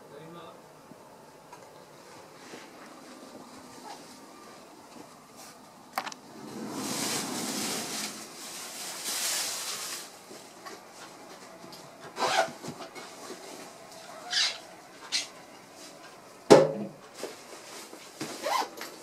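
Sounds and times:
rubbing and rustling: 6.4 - 16.4, 17.0 - 19.0.

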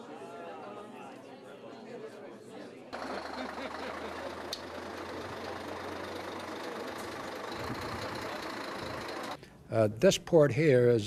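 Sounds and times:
road noise: 3.0 - 9.4
truck engine driving past: 3.0 - 9.4.

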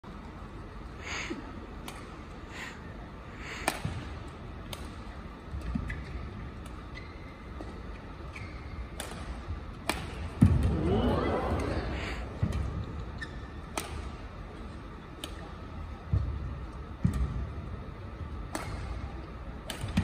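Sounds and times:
indoor arena background: 0.0 - 20.0
rackets striking shuttlecock: 3.6 - 6.0, 8.9 - 10.6, 12.4 - 14.3, 15.1 - 15.5, 18.3 - 20.0.

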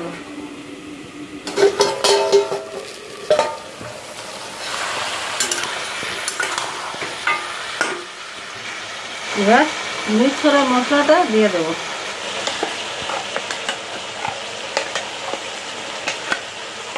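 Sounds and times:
meat sizzling in oil: 1.4 - 16.9
metal lid clanging: 1.5 - 4.0, 5.4 - 8.1.

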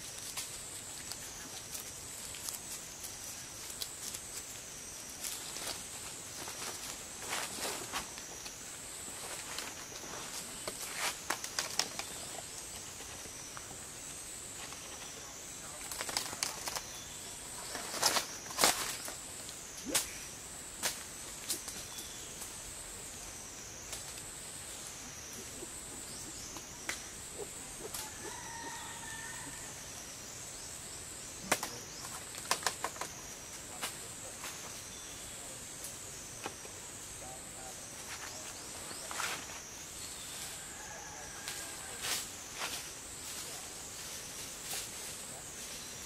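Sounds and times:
branches cracking and rustling: 0.0 - 13.7, 14.5 - 20.2, 31.5 - 34.9
high insect drone: 0.0 - 46.0.

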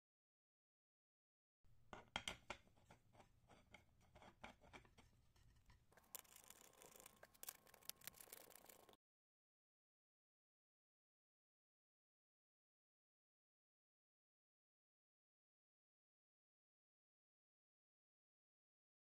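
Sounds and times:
table legs clicking and scraping: 1.9 - 9.0.

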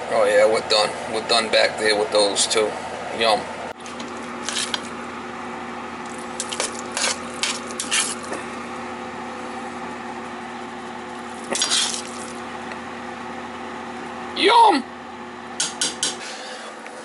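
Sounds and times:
steady low hum: 0.0 - 17.0
spoon stirring mash in pot: 6.1 - 8.3.

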